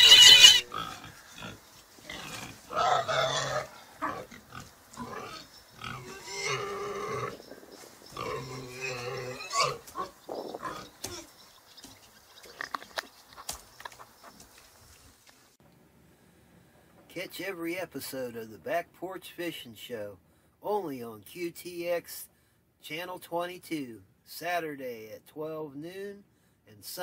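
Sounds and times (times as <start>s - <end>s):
pig squealing: 0.0s - 7.4s, 8.1s - 11.3s
pig grunting: 0.0s - 7.5s, 8.1s - 11.3s.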